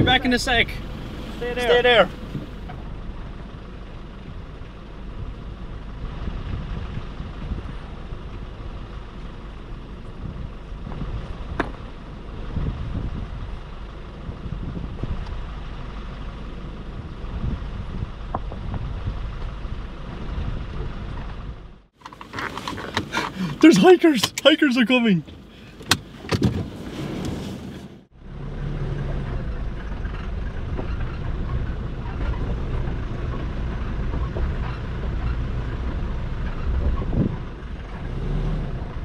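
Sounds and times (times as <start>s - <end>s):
truck engine idling: 0.0s - 22.0s.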